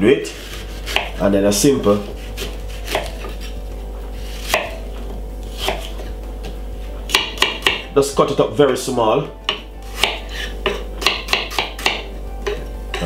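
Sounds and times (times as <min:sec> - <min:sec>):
knife cutting apple on board: 0:00.4 - 0:01.2, 0:01.9 - 0:03.6, 0:04.2 - 0:07.9, 0:09.5 - 0:13.0.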